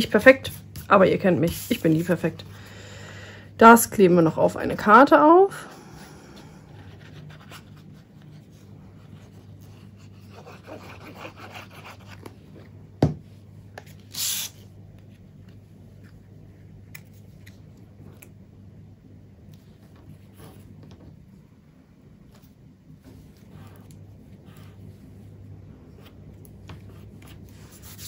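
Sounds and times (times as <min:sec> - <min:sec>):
paper rubbing and scraping: 0:06.8 - 0:12.3, 0:26.9 - 0:28.0.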